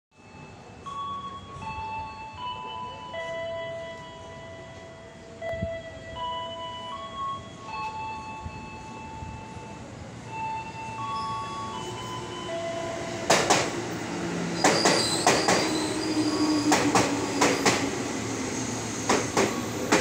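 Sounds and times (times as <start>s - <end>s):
low train whine: 0.2s - 20.0s
train wheels clicking over rail joints: 13.2s - 20.0s.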